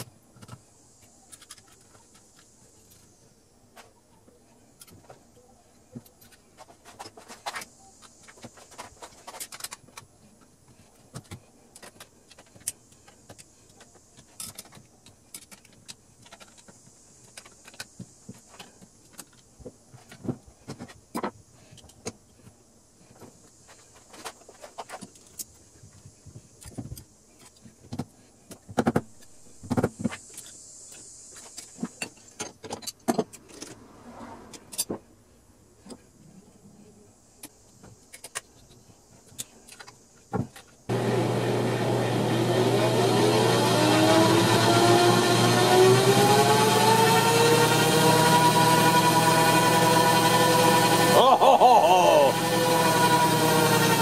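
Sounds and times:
metallic clicks of hand tools: 37.4s - 40.7s.

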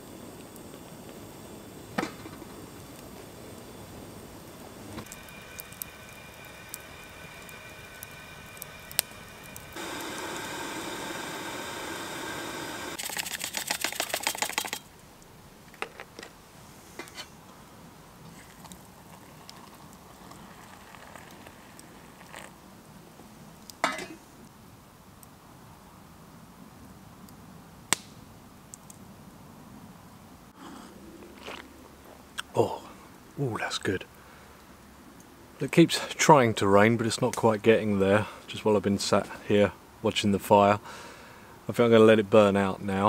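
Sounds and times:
campfire crackling: 0.0s - 43.0s
liquid pouring into mug: 19.1s - 22.5s.

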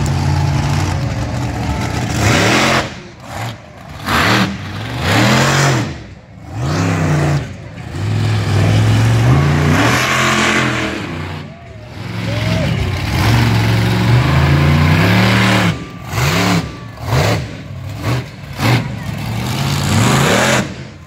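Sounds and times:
truck engine revving: 0.0s - 21.0s.

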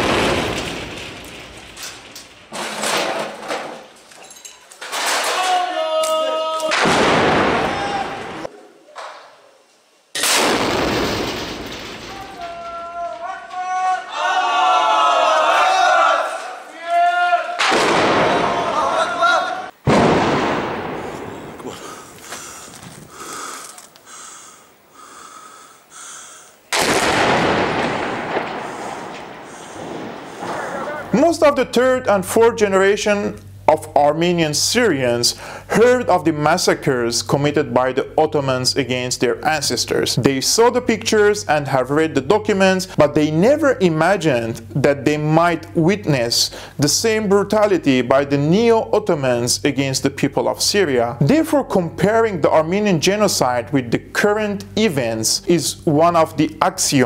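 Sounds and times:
shell exploding with rumble: 0.0s - 2.1s, 6.8s - 7.8s, 10.2s - 12.4s, 17.6s - 18.6s, 19.8s - 22.7s, 26.7s - 30.9s
long held call: 5.3s - 6.9s, 28.7s - 31.4s
men shouting: 5.3s - 6.9s, 7.5s - 8.5s, 12.1s - 19.8s, 30.4s - 31.1s.

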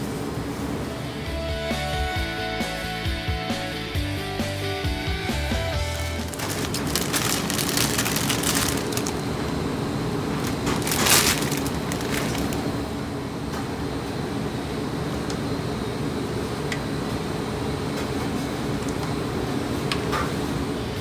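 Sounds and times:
steady hum: 4.1s - 17.8s
plastic bag crinkling: 5.7s - 9.6s, 10.3s - 12.8s
dry noodles crackling and snapping: 5.8s - 9.6s, 10.3s - 12.8s.

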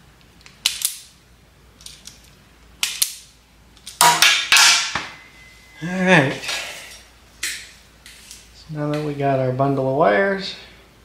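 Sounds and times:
hand tools snapping and clicking: 0.4s - 1.1s.

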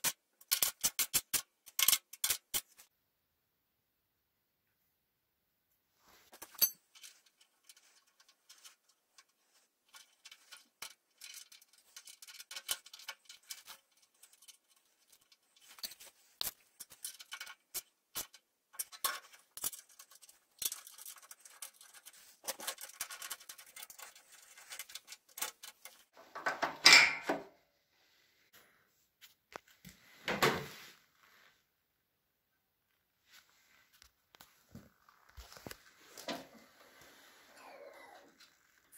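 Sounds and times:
small metal parts clicking and rattling: 0.0s - 2.8s, 6.3s - 26.1s.

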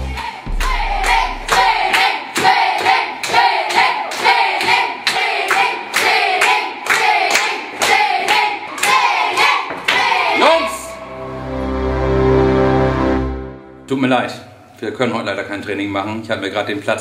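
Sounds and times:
children clapping in rhythm: 0.0s - 10.2s
children singing together: 0.0s - 10.4s.

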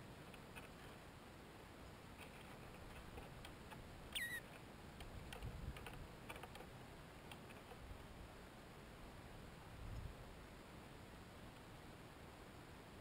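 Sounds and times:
dry ticks and rustles: 0.2s - 1.1s, 2.1s - 7.9s
whistled bird call: 4.2s - 4.4s.

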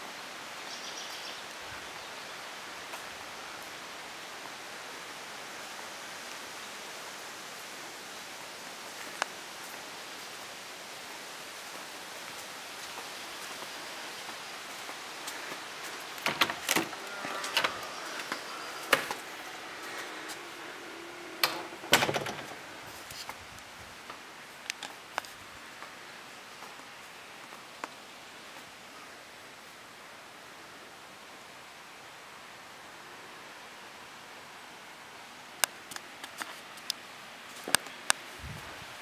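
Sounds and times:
steady hiss: 0.0s - 39.0s
door clicks and knocks: 16.2s - 19.3s, 21.3s - 22.7s.

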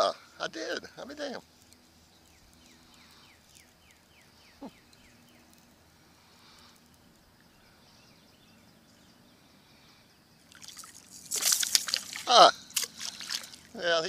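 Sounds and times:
fish splashing at surface: 10.5s - 13.7s.

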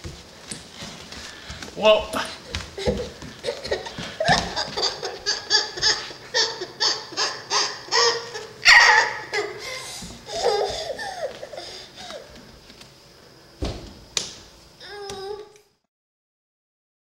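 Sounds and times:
toddler laughing: 2.5s - 12.3s
toddler vocal sounds: 5.5s - 12.2s, 14.8s - 15.6s.

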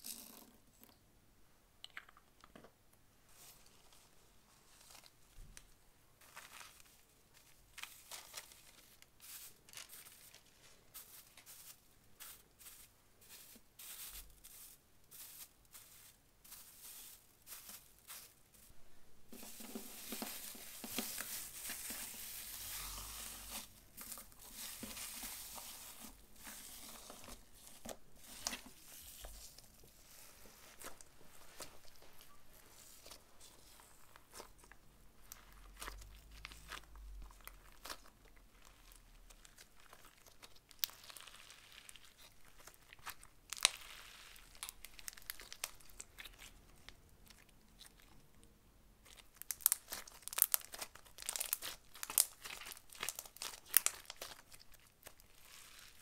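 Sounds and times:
foil crinkling under fingers: 49.2s - 56.0s.

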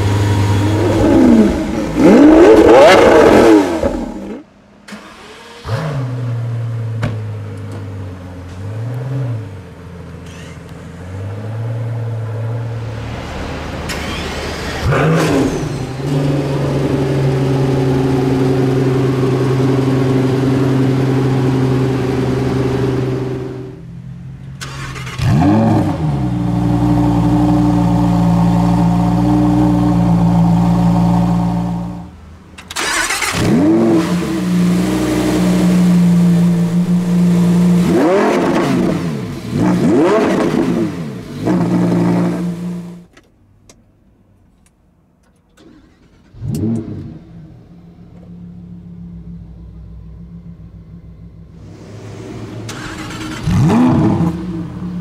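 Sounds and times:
engine revving blips: 0.0s - 4.4s
car engine idling: 0.0s - 4.7s, 45.6s - 55.0s
engine starting with a flare: 4.8s - 5.8s, 13.8s - 16.0s, 24.6s - 25.5s, 32.6s - 33.6s, 45.6s - 47.2s, 51.6s - 54.4s.

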